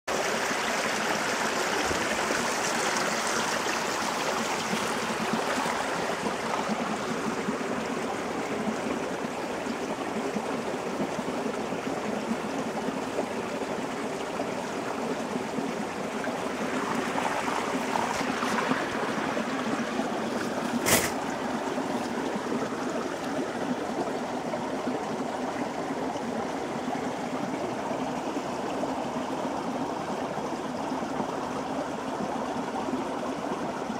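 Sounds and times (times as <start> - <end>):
running stream water: 0.1 - 33.9.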